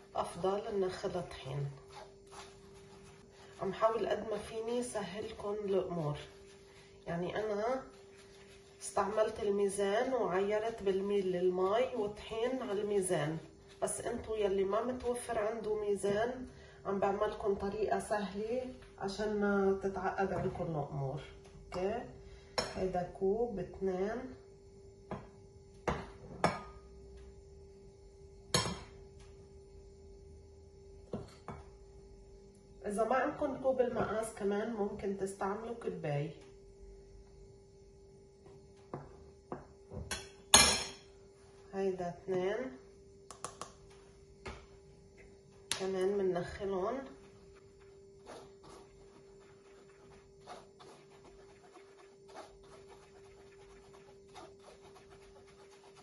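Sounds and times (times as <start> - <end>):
faint steady hum: 0.0 - 56.0
spoon scraping flour through sieve: 1.4 - 11.1, 12.1 - 15.4, 46.4 - 56.0.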